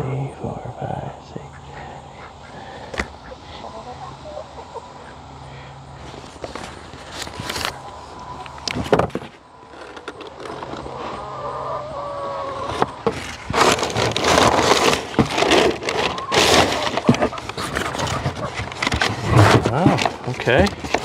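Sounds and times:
knocks of box and wooden parts: 8.7 - 10.8, 12.7 - 21.0
packing paper crinkling and rustling: 13.1 - 21.0.

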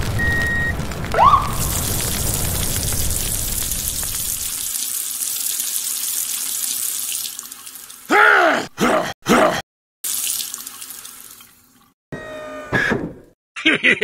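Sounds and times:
low rumble: 0.0 - 4.5.

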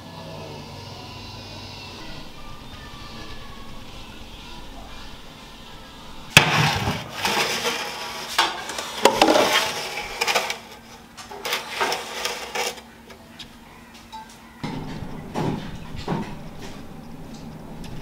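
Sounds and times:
metal baking tray clattering: 2.0 - 12.9.

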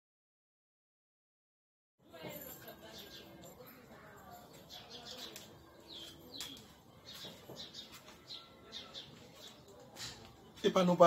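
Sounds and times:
small birds chirping: 2.5 - 11.0.

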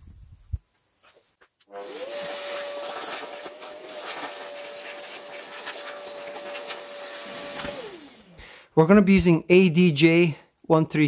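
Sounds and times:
vacuum cleaner whining: 1.6 - 8.7.

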